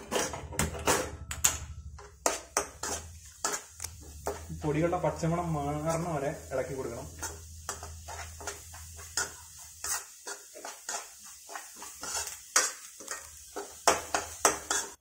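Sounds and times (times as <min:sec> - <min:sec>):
spoon scraping in a pan: 0:00.0 - 0:01.0, 0:02.0 - 0:15.0.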